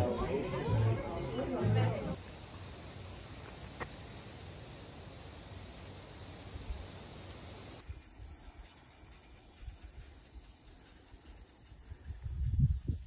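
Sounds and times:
insects chirring: 0:02.2 - 0:13.0
wind buffeting microphone: 0:11.9 - 0:13.0.

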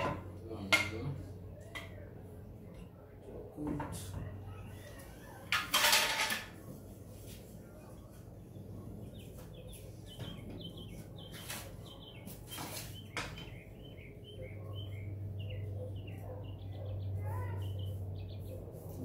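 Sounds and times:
small birds chirping: 0:07.7 - 0:19.0.

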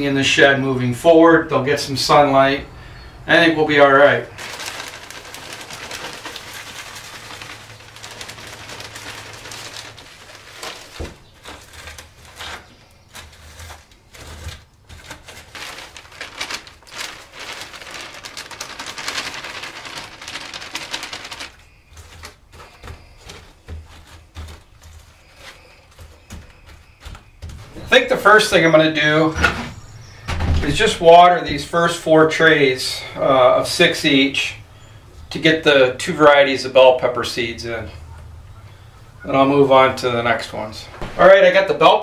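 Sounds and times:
plastic bag crinkling: 0:03.6 - 0:28.8
hands rustling and scraping soil: 0:03.6 - 0:29.0
soil pattering into tray: 0:04.3 - 0:28.5.

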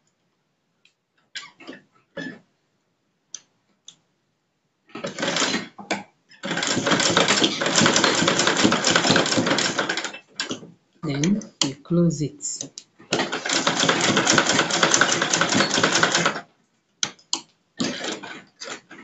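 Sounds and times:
sewing machine stitching: 0:05.0 - 0:05.8, 0:06.4 - 0:11.7, 0:13.1 - 0:16.4, 0:17.8 - 0:19.0.

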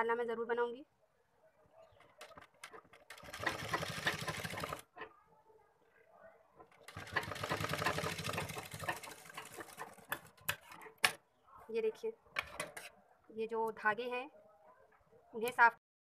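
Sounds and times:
sewing machine running: 0:02.3 - 0:04.9, 0:06.8 - 0:10.2.

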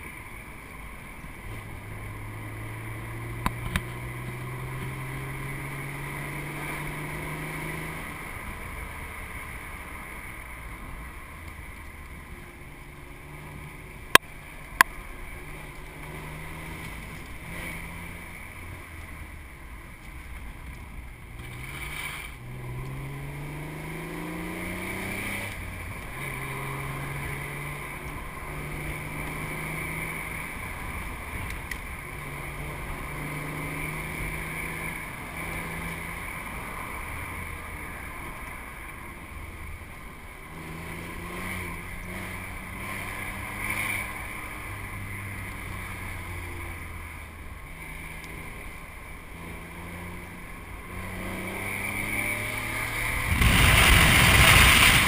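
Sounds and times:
car engine under load: 0:50.8 - 0:55.0
wind rush: 0:53.0 - 0:55.0.

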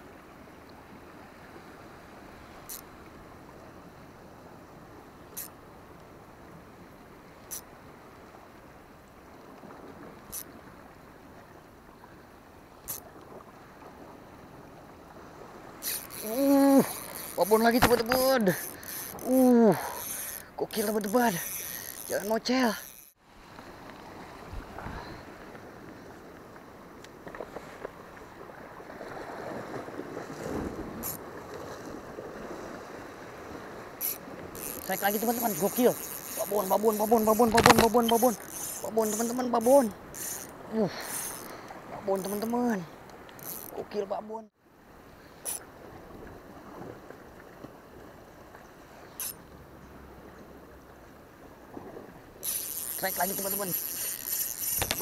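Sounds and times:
sea water washing at shore: 0:00.0 - 0:55.0
wind on microphone: 0:28.9 - 0:34.9.

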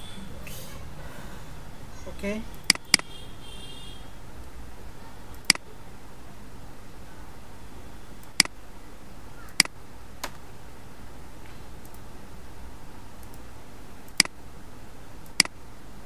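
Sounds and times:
low background noise: 0:00.0 - 0:16.0
computer mouse clicking: 0:11.8 - 0:12.1, 0:13.2 - 0:13.5, 0:14.1 - 0:14.4, 0:15.2 - 0:15.6.

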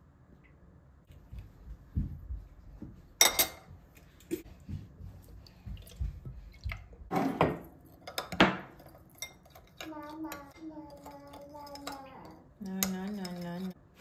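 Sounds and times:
spoons clinking in ceramic bowl: 0:03.2 - 0:03.7, 0:08.0 - 0:13.8.

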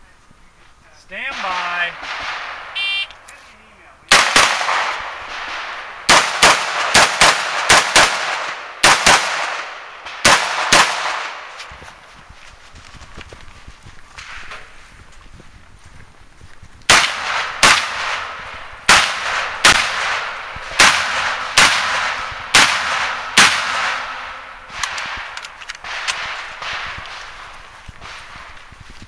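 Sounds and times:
rifle shots echoing: 0:01.2 - 0:03.3, 0:04.1 - 0:11.6, 0:16.9 - 0:28.7.

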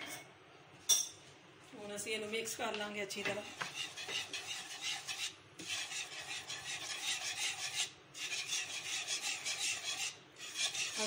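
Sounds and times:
whisk scraping a frying pan: 0:03.1 - 0:11.0.

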